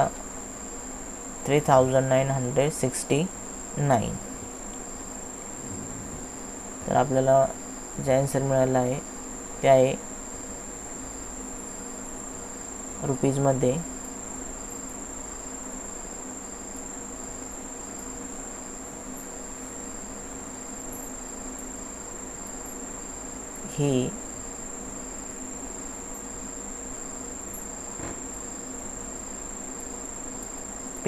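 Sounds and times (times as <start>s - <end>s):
faint low hum and hiss: 0.0s - 31.0s
high-pitched whine: 5.4s - 9.0s.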